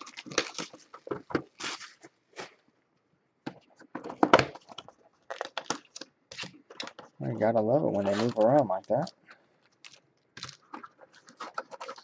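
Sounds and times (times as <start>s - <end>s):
plastic shrink wrap crinkling: 0.0s - 2.6s, 4.5s - 12.0s.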